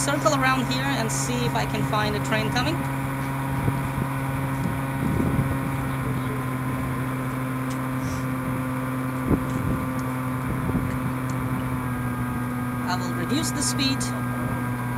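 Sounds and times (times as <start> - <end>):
wind noise: 0.0 - 7.0, 8.2 - 12.5
model plane motor drone: 0.0 - 14.9.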